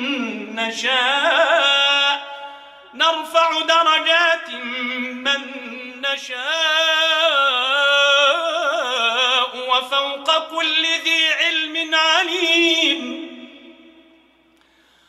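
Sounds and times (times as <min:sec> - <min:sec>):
man chanting melodic recitation: 0:00.0 - 0:14.0.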